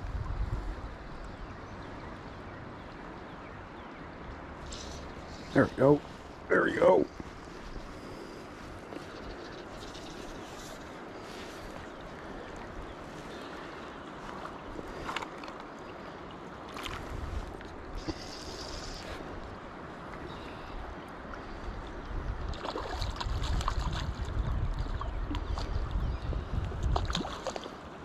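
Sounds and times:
wind buffeting microphone: 0.0 - 1.8, 17.0 - 27.4
river water flowing and lapping: 0.0 - 28.0.

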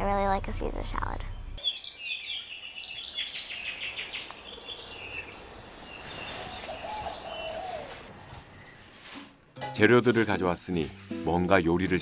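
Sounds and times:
birds chirping and singing: 1.2 - 9.0.

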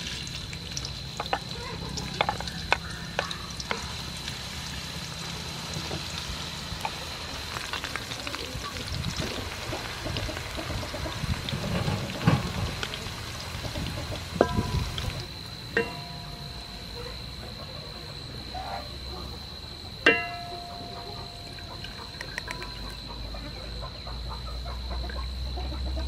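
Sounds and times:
onions sizzling in oil: 0.0 - 17.6.

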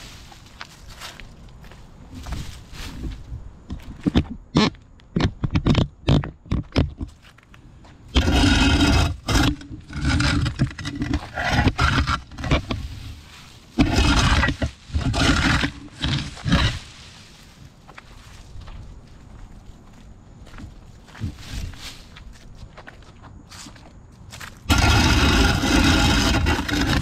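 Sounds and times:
shovel scraping concrete: 24.7 - 27.0.

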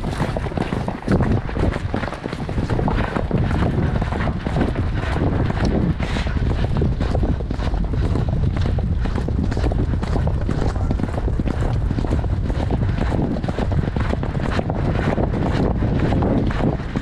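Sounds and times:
horse hoofbeats on grass: 0.0 - 17.0
wind rumble on microphone: 0.0 - 17.0.

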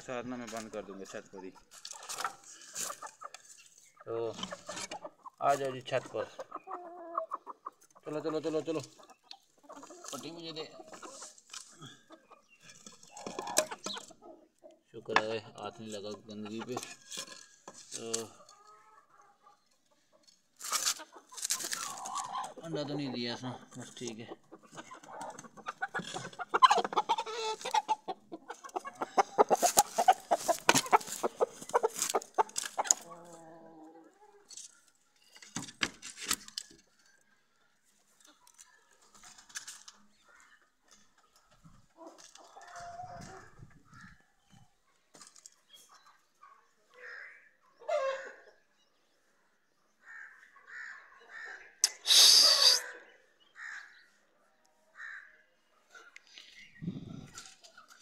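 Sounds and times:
birds chirping: 0.0 - 58.0
chicken clucking and squawking: 0.1 - 17.4, 18.1 - 35.1, 37.6 - 45.1, 45.8 - 56.2
bird harsh squawk: 50.1 - 54.0.

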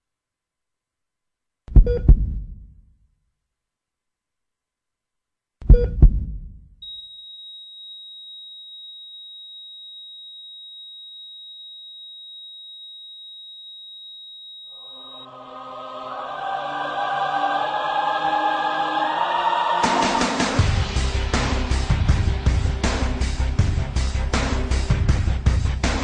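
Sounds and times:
heartbeat thump: 1.7 - 2.7, 5.6 - 6.7
heart monitor flatline beep: 1.8 - 2.2, 5.7 - 6.1, 6.8 - 15.3
choir music: 14.8 - 25.5.

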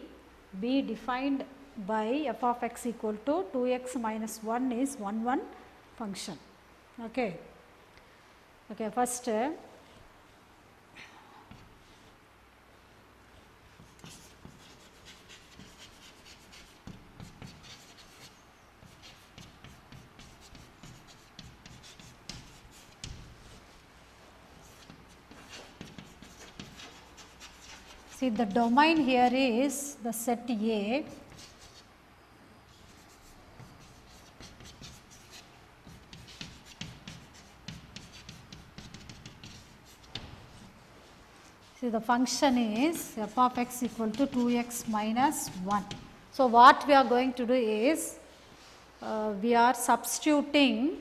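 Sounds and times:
chalk scratching on blackboard: 13.7 - 23.9, 24.5 - 29.4, 31.0 - 31.9, 32.7 - 40.8, 41.4 - 46.1.

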